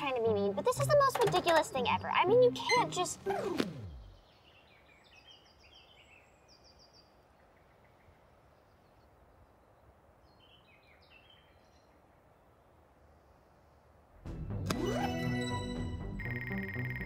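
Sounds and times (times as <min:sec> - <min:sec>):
faint background hiss: 0:00.0 - 0:14.2
soft bird chirps: 0:02.6 - 0:13.9.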